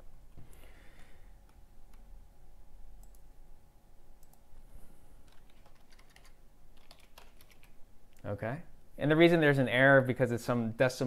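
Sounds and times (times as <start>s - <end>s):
faint steady hum: 0.0s - 11.0s
computer mouse clicks: 3.0s - 3.2s, 4.2s - 4.4s.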